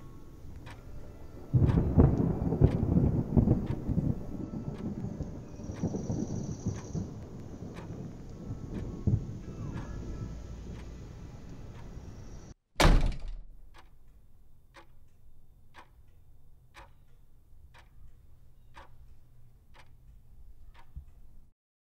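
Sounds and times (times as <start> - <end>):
low rumble: 0.0 - 12.5
clock ticking: 0.6 - 0.8, 1.5 - 12.0, 13.6 - 21.4
heavy slam with ringing: 12.8 - 13.5.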